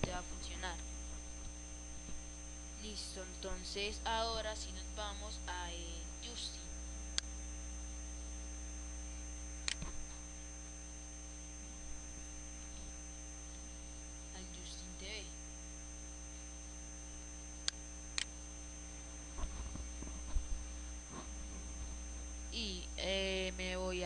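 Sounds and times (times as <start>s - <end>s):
electrical mains hum: 0.0s - 24.0s
computer mouse clicks: 9.6s - 10.2s.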